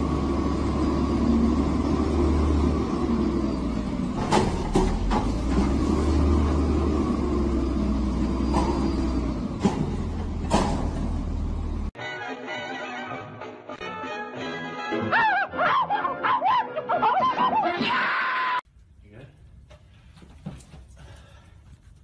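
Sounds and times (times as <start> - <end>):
garbage truck rumbling: 0.0 - 12.0.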